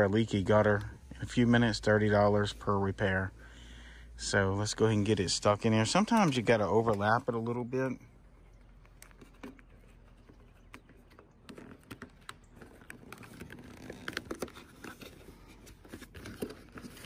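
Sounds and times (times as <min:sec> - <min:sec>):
tape crinkling: 0:08.7 - 0:17.0.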